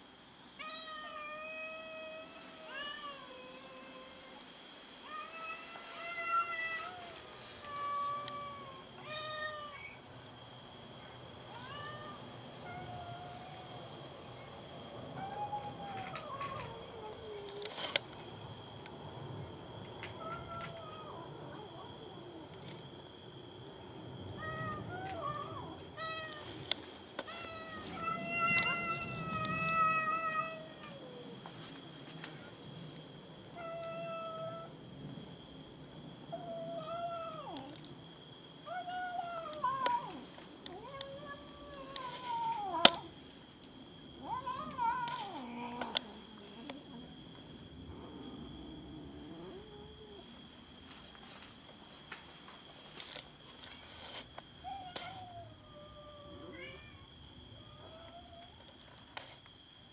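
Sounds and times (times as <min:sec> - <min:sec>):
cat meowing: 0:27.3 - 0:31.1.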